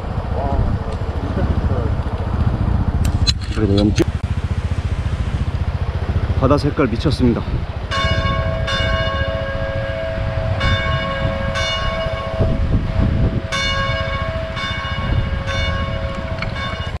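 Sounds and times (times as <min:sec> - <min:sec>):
wind rumbling on microphone: 0:00.0 - 0:17.0
held two-note drone: 0:07.8 - 0:17.0
bell-like chimes: 0:13.5 - 0:17.0.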